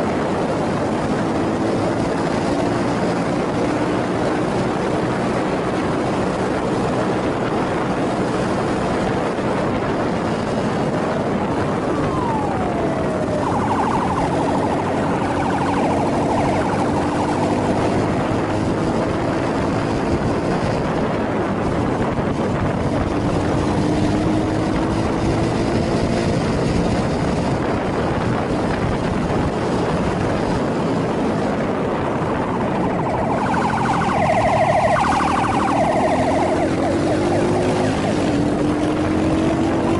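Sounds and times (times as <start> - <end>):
warbling siren: 0.0 - 7.0, 10.0 - 20.7, 30.4 - 39.9
wind noise: 0.0 - 39.9.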